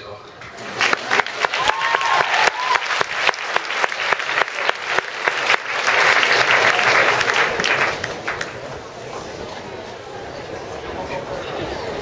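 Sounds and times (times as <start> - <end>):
audience applauding: 0.4 - 8.8.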